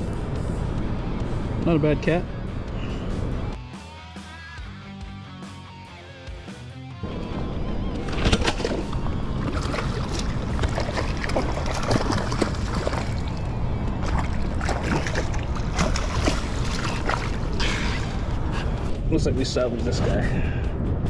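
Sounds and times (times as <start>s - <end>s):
steady low rumble: 0.0s - 3.6s, 7.0s - 21.0s
water sloshing and splashing: 7.8s - 18.9s.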